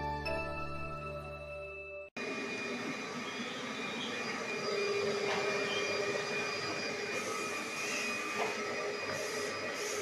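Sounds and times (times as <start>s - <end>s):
vacuum cleaner motor whirring: 2.2s - 10.0s.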